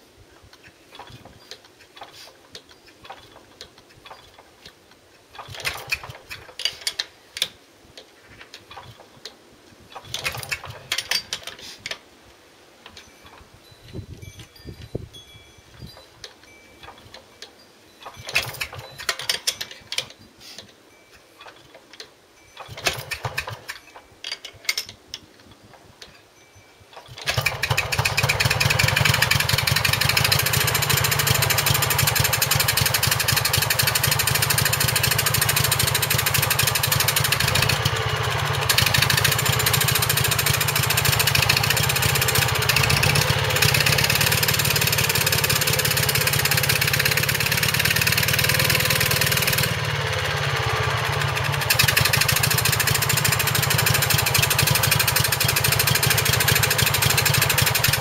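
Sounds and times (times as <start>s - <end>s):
clicking and rattling by hand: 0.4s - 12.0s, 16.0s - 20.8s, 21.4s - 26.2s, 26.9s - 49.8s, 51.0s - 58.0s
stationary engine running: 27.3s - 58.0s.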